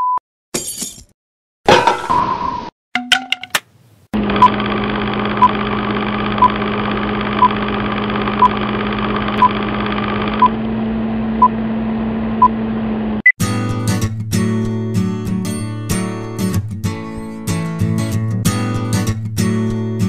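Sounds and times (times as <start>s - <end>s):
film projector whirring: 4.2s - 11.0s.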